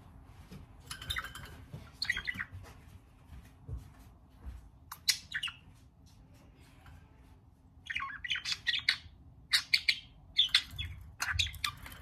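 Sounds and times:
budgerigar chirping: 7.8 - 12.0.

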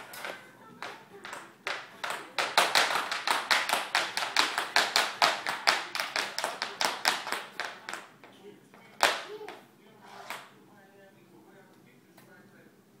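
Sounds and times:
sharp rhythmic smacks: 0.8 - 8.4.

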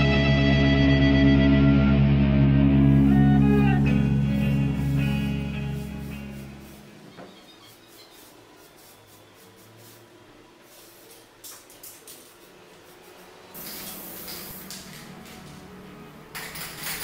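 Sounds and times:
spray paint can hissing: 4.4 - 7.0, 7.6 - 11.2, 12.1 - 15.1.

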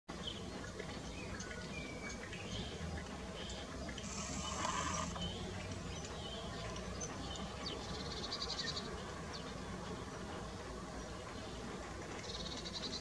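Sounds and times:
small birds chirping: 0.1 - 13.0
short buzz: 4.0 - 5.2.

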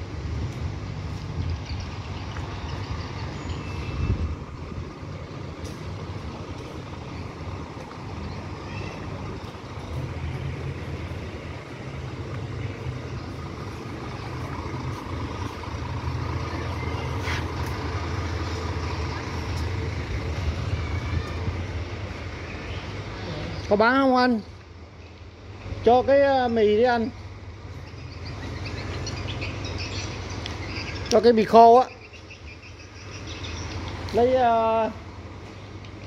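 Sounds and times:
bus diesel engine idling: 0.0 - 36.0.

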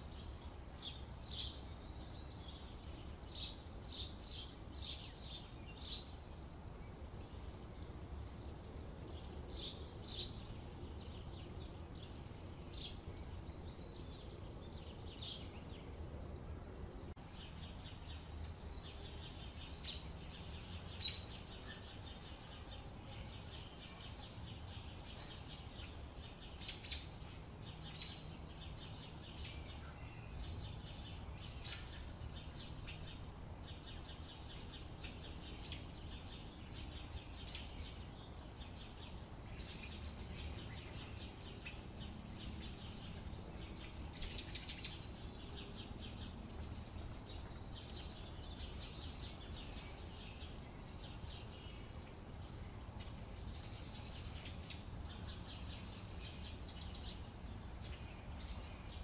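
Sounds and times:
low outdoor rumble: 0.0 - 59.0
birds chirping: 17.2 - 59.0.

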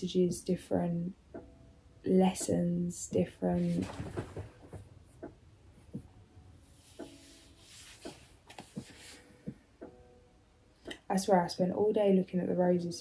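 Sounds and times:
book pages riffling: 3.6 - 4.8.

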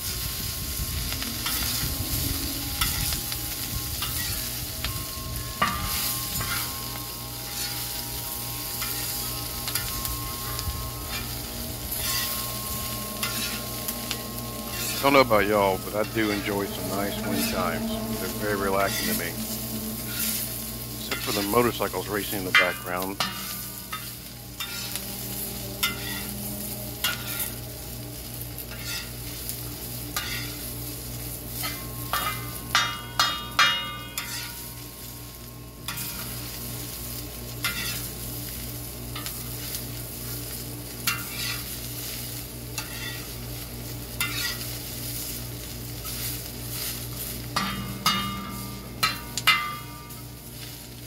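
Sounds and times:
cabbage sizzling: 0.0 - 51.0
metal spatula scraping: 1.0 - 2.0, 2.7 - 27.6, 28.6 - 29.4, 30.2 - 30.6, 31.6 - 34.7, 37.6 - 38.1, 41.0 - 43.4, 44.2 - 51.0
ringing strikes: 1.0 - 30.6, 31.3 - 36.6, 46.8 - 50.8.

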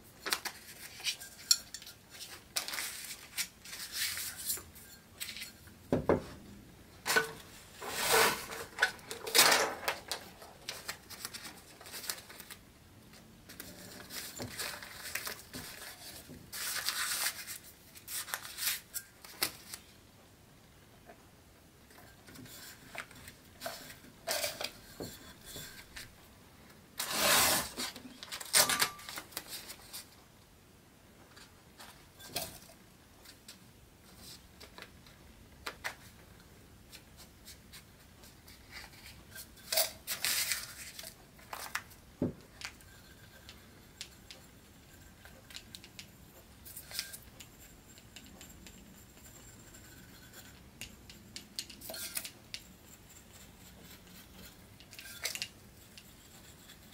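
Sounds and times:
paper rustling and crinkling: 2.1 - 5.6, 7.1 - 19.9, 36.9 - 43.6.

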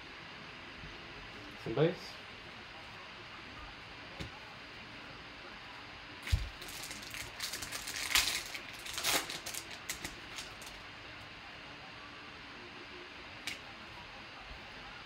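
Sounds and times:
foil wrapper crinkling and tearing: 6.2 - 10.8.

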